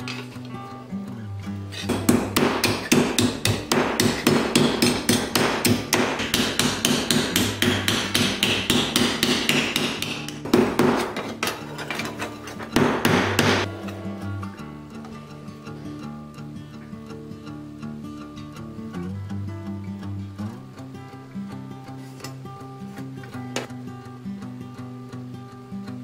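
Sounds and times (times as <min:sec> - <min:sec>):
hammer beating brass on anvil: 0:01.8 - 0:11.4, 0:12.7 - 0:14.6.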